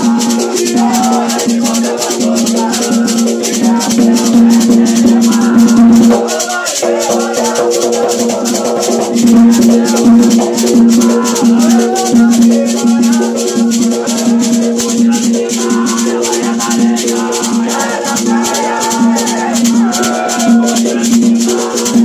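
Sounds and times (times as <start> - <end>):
shaker strokes: 0.0 - 22.0
voices singing: 0.0 - 22.0.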